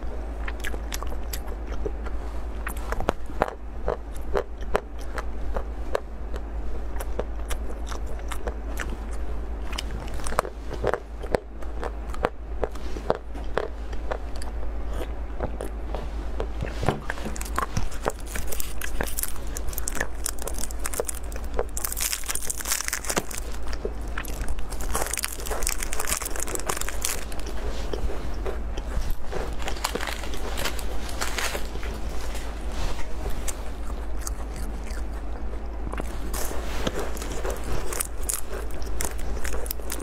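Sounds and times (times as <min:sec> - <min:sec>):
chewing chocolate crunches: 0:00.4 - 0:40.0
plastic wrapper crinkling: 0:17.1 - 0:27.6, 0:29.1 - 0:33.6.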